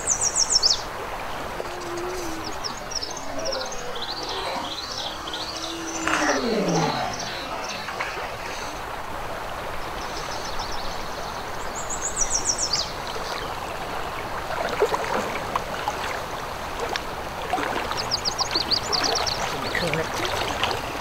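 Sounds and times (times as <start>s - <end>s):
water splashing: 0.0s - 10.3s, 12.9s - 21.0s
flowing river water: 0.0s - 21.0s.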